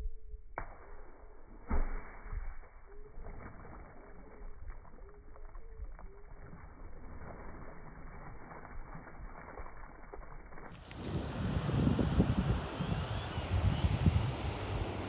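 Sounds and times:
deep slowed splash: 0:00.6 - 0:12.0
low-pitched bird calls: 0:12.7 - 0:14.3.

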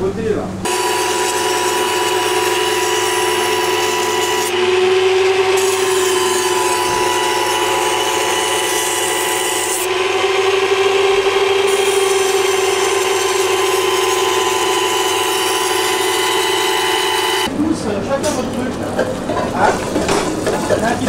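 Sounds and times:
knife grinding on wheel: 0:00.7 - 0:17.5
knife sharpener motor humming: 0:00.7 - 0:17.5.

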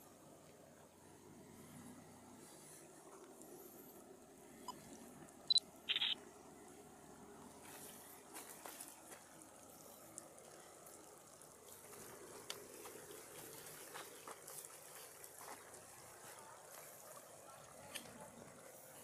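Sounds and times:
faint outdoor hiss: 0:00.0 - 0:19.0
small clicks and rustles: 0:07.7 - 0:18.5.

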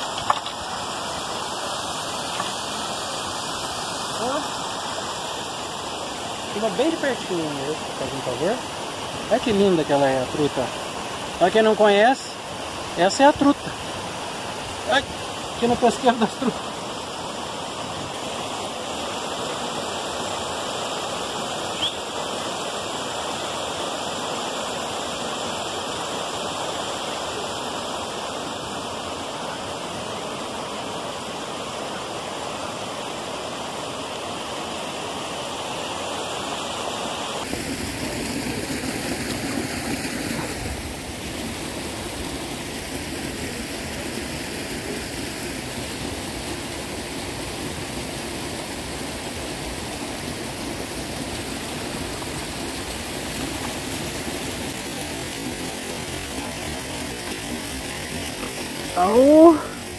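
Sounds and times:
water rushing: 0:00.0 - 0:59.9.

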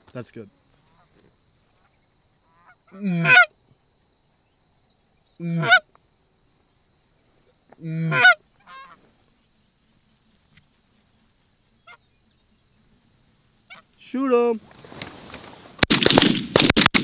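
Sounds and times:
goose honks: 0:02.5 - 0:03.5, 0:05.4 - 0:05.8, 0:07.8 - 0:09.0, 0:13.7 - 0:13.9.

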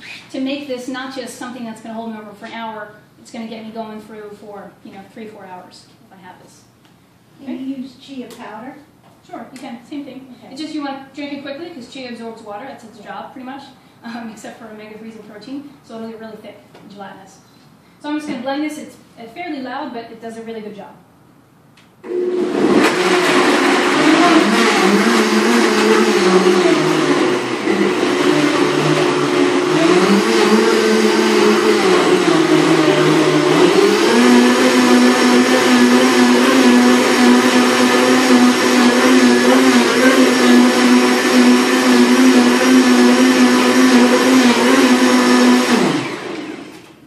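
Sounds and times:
blender running: 0:22.0 - 0:46.9.

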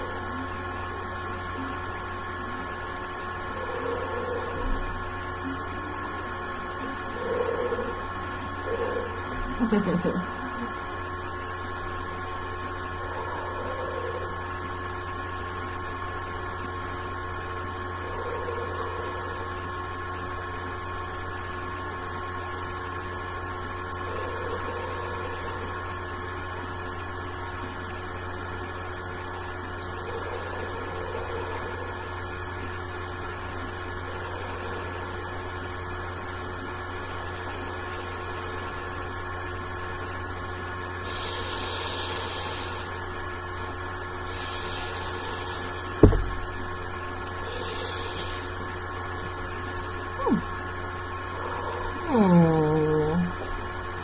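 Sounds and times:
electrical hum: 0:00.0 - 0:54.0
soft breathy hisses: 0:41.0 - 0:42.9, 0:44.2 - 0:46.0, 0:47.4 - 0:48.6
sharp thump with falling tone: 0:46.0 - 0:46.4.

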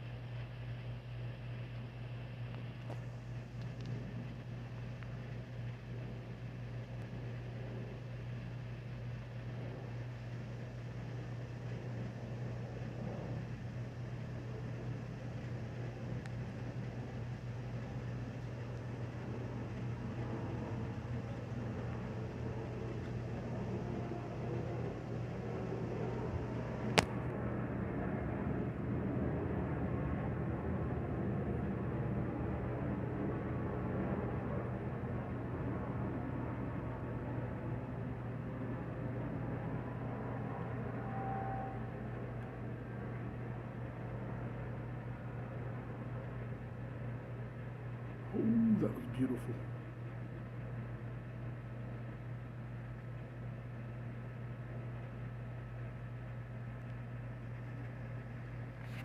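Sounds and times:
constant hiss: 0:00.0 - 0:27.3
low hum: 0:00.0 - 0:59.0
faint ticks: 0:02.5 - 0:04.0.

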